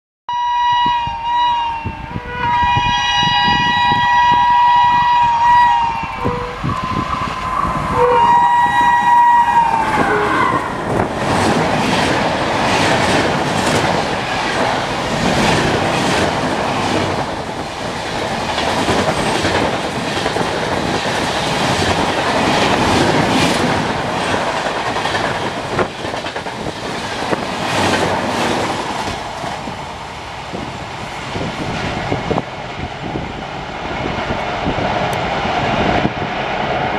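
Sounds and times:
locomotive horn blasts: 0.3s - 10.7s
train wheels clattering over rails: 9.9s - 32.5s.

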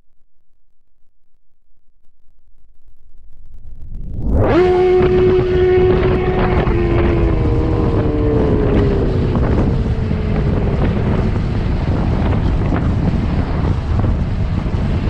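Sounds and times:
wind rumble on microphone: 3.4s - 15.0s
electric motor whine: 3.7s - 14.1s.

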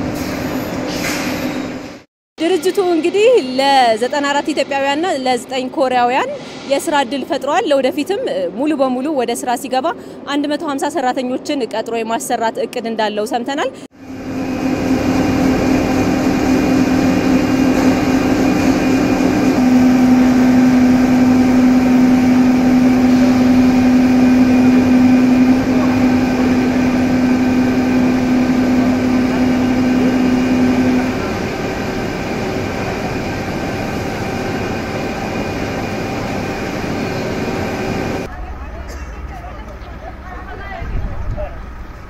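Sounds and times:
low machine drone: 13.8s - 39.6s
rolling mill machinery hum: 13.9s - 38.7s.

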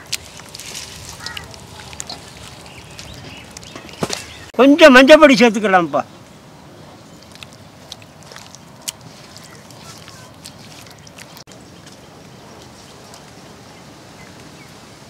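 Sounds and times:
hand squishing wet paste in bowl: 0.0s - 4.4s, 7.1s - 11.6s
outdoor background hiss: 2.2s - 7.9s, 11.5s - 15.0s.

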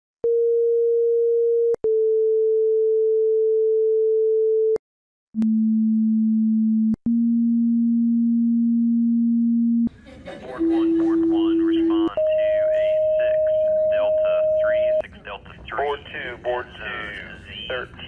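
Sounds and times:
electronic pure tone: 5.4s - 9.9s
lower electronic tone: 5.4s - 9.9s.

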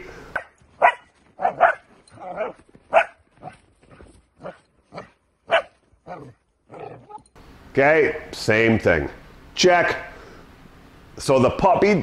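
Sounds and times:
puppy barking: 0.4s - 7.2s.

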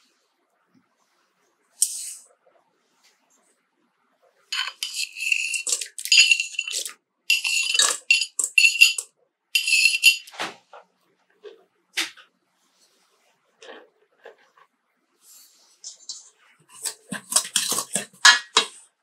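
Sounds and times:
frozen cubes clattering on metal: 4.6s - 10.3s, 15.8s - 18.7s.

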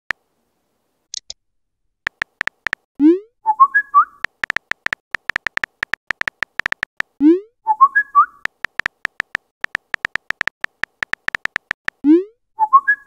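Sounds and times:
key-tap ticks: 2.1s - 2.9s, 4.2s - 7.1s, 8.4s - 12.0s
whistled chirp: 3.4s - 4.2s, 7.7s - 8.4s, 12.6s - 13.0s.

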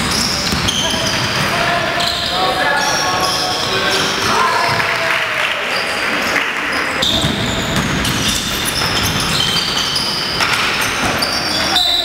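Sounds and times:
basketball bouncing: 0.0s - 1.5s, 7.1s - 11.6s
sneakers squeaking on floor: 0.0s - 4.9s, 5.7s - 12.0s.

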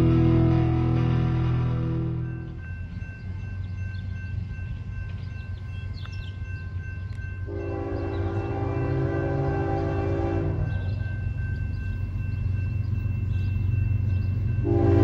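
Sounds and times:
locomotive air horn blast: 0.0s - 2.2s, 7.5s - 10.7s, 14.6s - 15.0s.

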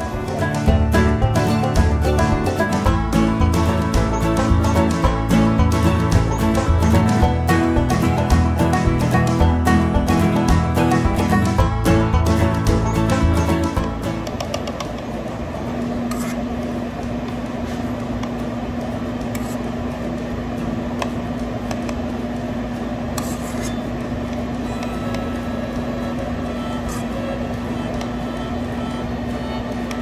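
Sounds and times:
steady tone: 0.0s - 16.4s
appliance humming: 0.0s - 30.0s.

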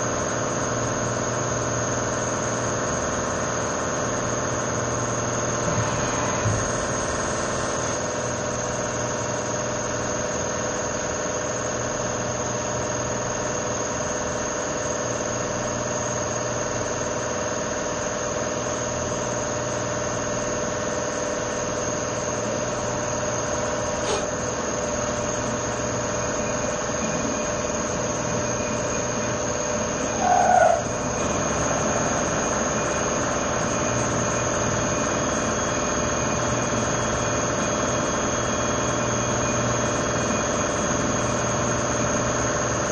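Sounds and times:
spindle whine: 0.0s - 11.7s, 15.2s - 42.9s
milling machine hum: 0.0s - 42.9s
machine squeal: 3.9s - 9.3s, 23.2s - 42.3s.

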